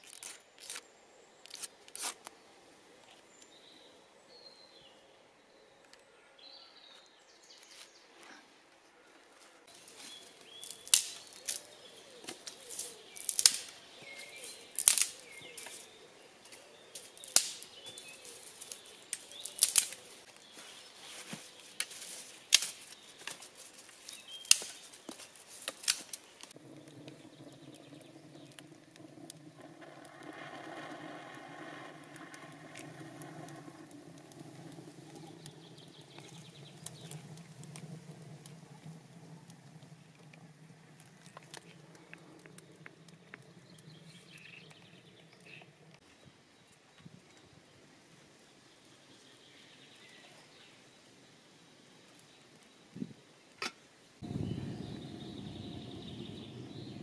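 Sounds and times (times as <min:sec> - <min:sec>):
faint birdsong: 0:00.0 - 0:57.0
steady low hum: 0:26.5 - 0:46.0, 0:54.2 - 0:57.0.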